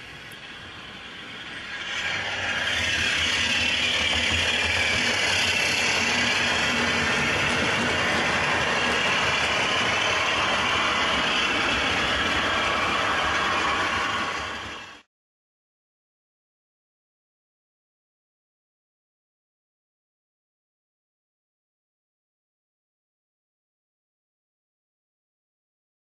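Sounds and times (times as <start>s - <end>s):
wheels rattling on track: 0.0s - 15.0s
model train diesel engine sound: 0.0s - 15.1s.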